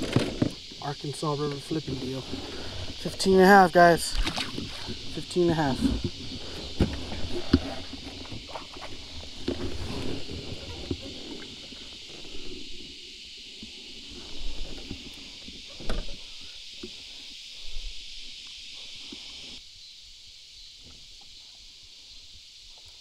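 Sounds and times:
steady high hiss: 0.0s - 23.0s.

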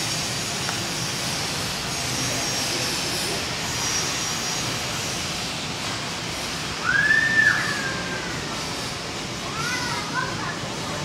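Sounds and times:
outdoor background noise: 0.0s - 11.0s
high whistle-like call: 6.8s - 8.4s.

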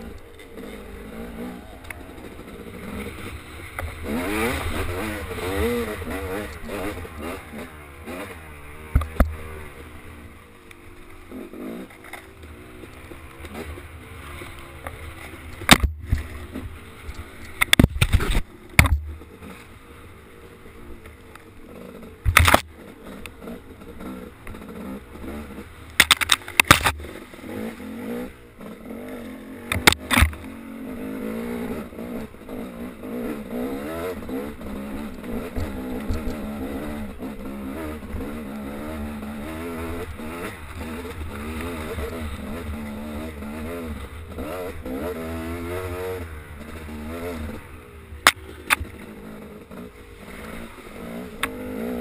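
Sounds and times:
off-road vehicle engine revving: 0.0s - 21.0s, 21.6s - 52.0s
knocks and clatters over rocks: 14.3s - 19.2s, 22.2s - 22.7s, 25.9s - 27.2s, 29.7s - 30.5s.

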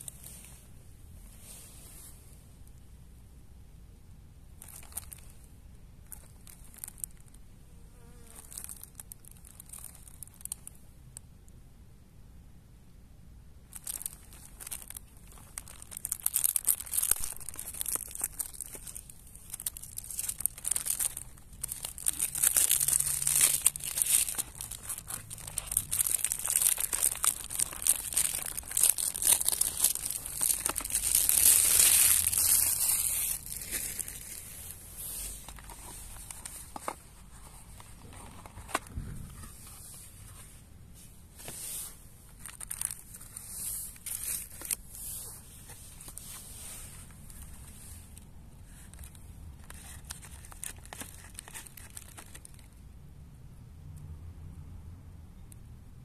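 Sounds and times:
cellophane wrap crinkling: 4.6s - 7.4s, 8.1s - 10.8s, 13.7s - 39.8s, 41.4s - 52.8s
cardboard box handling: 35.4s - 40.4s.

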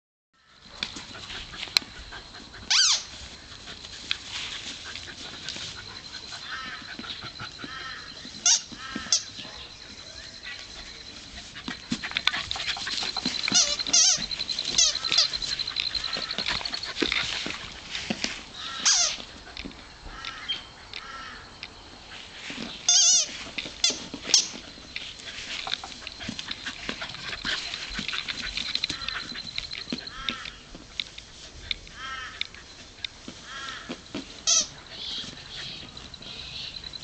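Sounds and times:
squeaky dog toy squeaking: 2.7s - 3.0s, 8.4s - 9.2s, 13.2s - 15.4s, 18.8s - 19.2s, 22.9s - 24.6s, 34.4s - 34.7s.

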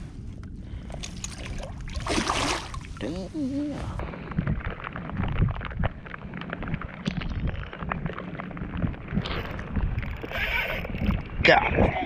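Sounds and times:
wind buffeting microphone: 0.0s - 12.0s
water slapping against hull: 0.9s - 3.0s.

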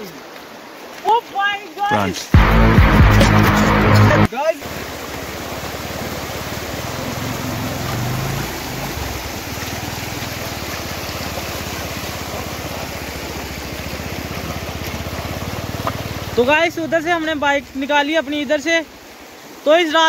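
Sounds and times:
stream water rushing: 0.0s - 20.0s
motorcycle engine: 2.4s - 17.8s.

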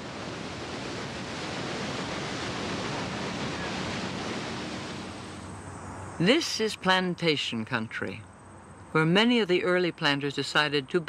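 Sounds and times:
paddlewheel splashing water: 0.0s - 5.5s.

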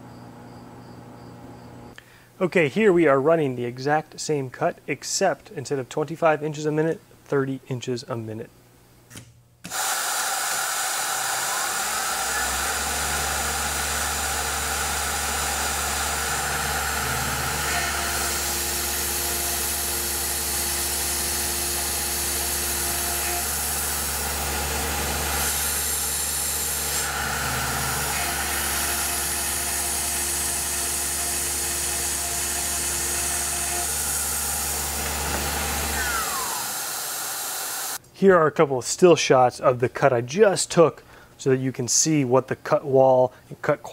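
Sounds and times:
end mill cutting metal: 9.7s - 38.0s
milling machine spindle hum: 9.8s - 38.0s.

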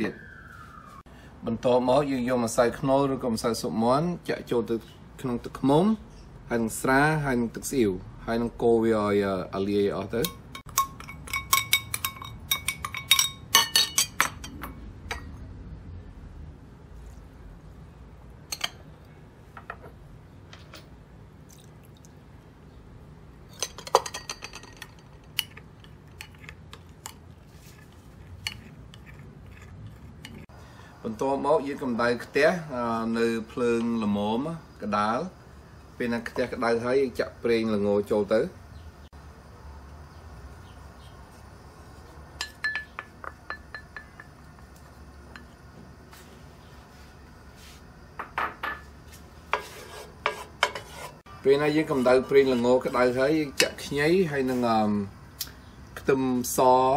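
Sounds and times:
spoon clinking against glass bowls: 10.2s - 15.3s, 23.5s - 26.5s, 28.4s - 30.4s, 42.4s - 45.6s
liquid pouring: 21.5s - 22.2s.

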